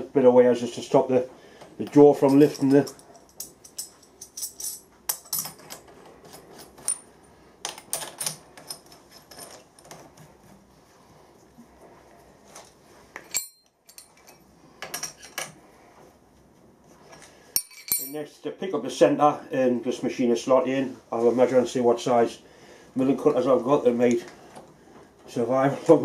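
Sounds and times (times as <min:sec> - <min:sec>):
metal parts clicking and clinking: 0:01.8 - 0:10.1, 0:13.2 - 0:15.6, 0:17.2 - 0:18.2.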